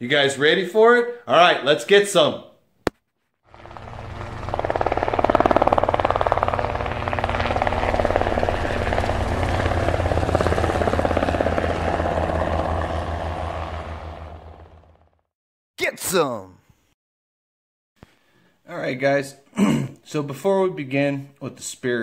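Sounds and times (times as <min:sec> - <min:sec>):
helicopter rotor beating: 0:03.5 - 0:15.3.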